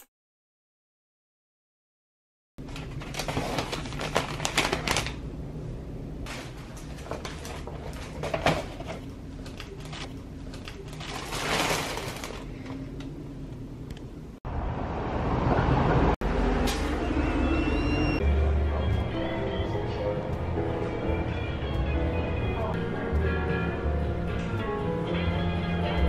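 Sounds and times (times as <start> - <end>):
shopping bags rustling: 2.6 - 5.2, 6.3 - 9.0, 10.8 - 12.9.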